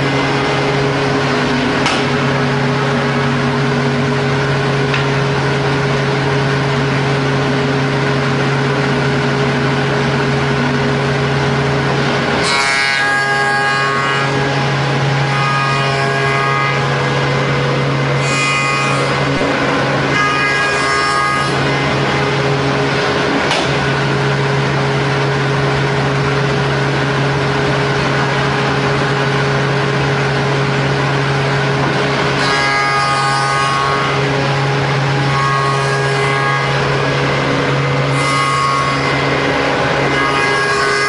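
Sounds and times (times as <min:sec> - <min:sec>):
wood mortising machine running: 0:00.0 - 0:41.0
high ringing cutter tone: 0:12.3 - 0:22.9, 0:28.8 - 0:41.0.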